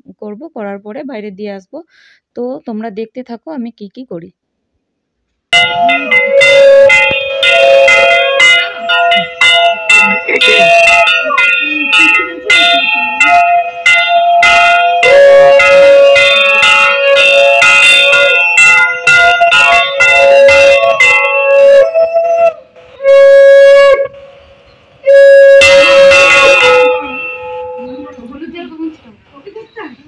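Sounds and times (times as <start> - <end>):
hand bell ringing rapidly: 5.6 - 21.7, 25.6 - 28.3
conch shell blasts: 5.6 - 28.2.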